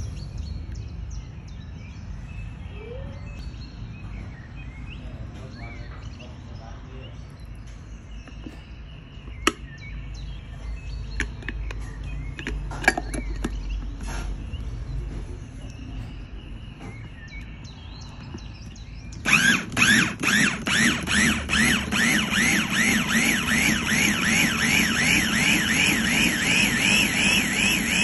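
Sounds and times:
bird chirps: 0.0 - 28.0
electric food chopper whining: 19.2 - 28.0.

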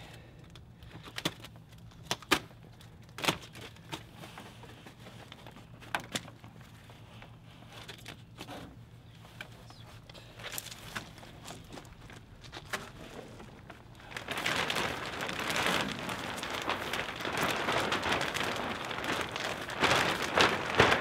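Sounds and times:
plastic sheeting crinkling: 0.5 - 21.0.

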